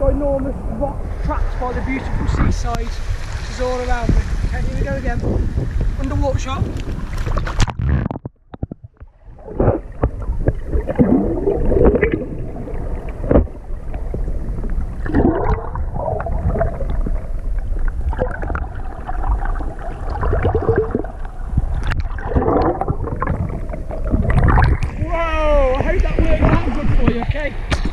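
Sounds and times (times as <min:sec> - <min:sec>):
water sloshing underwater: 0:00.0 - 0:27.9.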